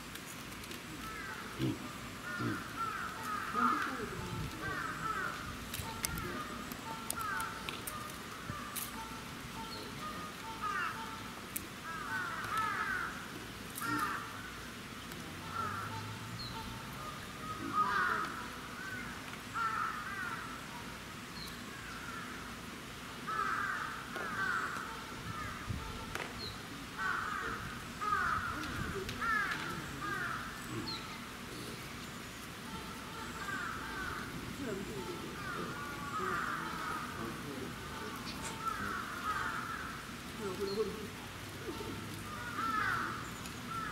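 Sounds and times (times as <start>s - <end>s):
harsh animal calls: 1.0s - 5.4s.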